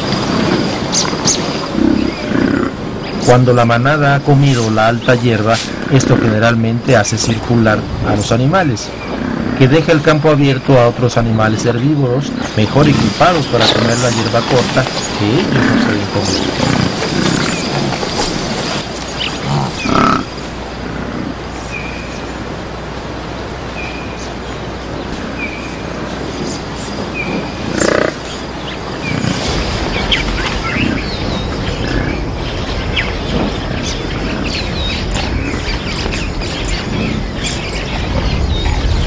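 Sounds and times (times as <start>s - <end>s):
loud animal calls: 0.0s - 23.4s, 24.0s - 39.0s
other birds chirping: 0.0s - 39.0s.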